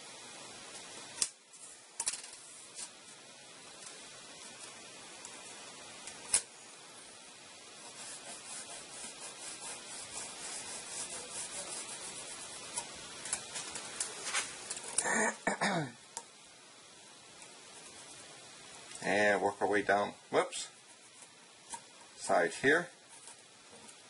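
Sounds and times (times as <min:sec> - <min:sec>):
pencil scratching along metal straightedge: 0:07.8 - 0:13.5.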